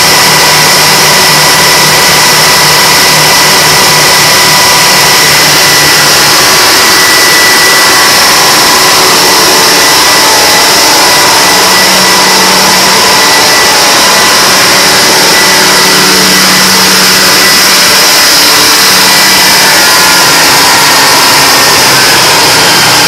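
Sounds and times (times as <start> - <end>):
diesel engines running: 0.0 - 23.0
high generator whine: 0.0 - 23.0.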